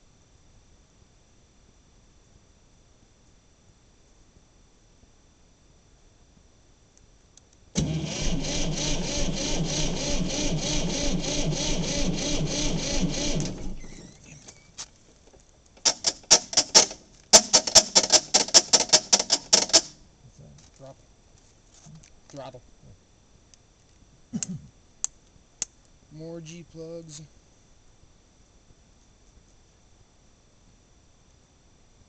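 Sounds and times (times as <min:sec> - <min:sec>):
starter motor cranking diesel engine: 0:07.8 - 0:14.4.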